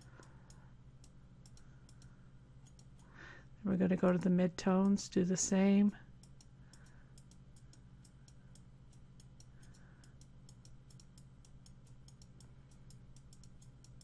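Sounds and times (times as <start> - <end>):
rapid faint ticks: 0.0 - 3.2, 6.0 - 14.0
low steady hum: 0.0 - 14.0.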